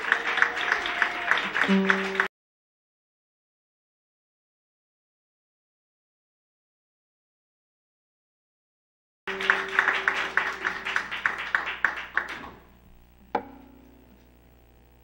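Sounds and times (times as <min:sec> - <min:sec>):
audience clapping: 0:00.0 - 0:02.3, 0:09.3 - 0:12.8
guitar string plucked: 0:13.2 - 0:14.4.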